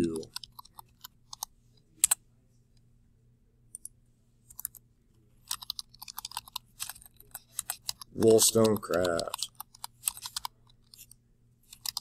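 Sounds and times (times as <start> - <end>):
computer keyboard typing: 0.0 - 2.2, 5.4 - 11.1, 11.7 - 12.0.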